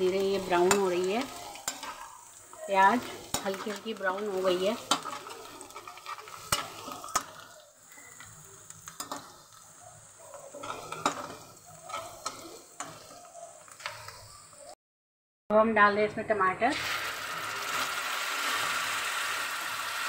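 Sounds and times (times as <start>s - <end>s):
onions sizzling in oil: 0.0s - 14.8s, 16.7s - 20.0s
spoon scraping and clinking pan: 0.4s - 7.4s, 10.3s - 13.2s.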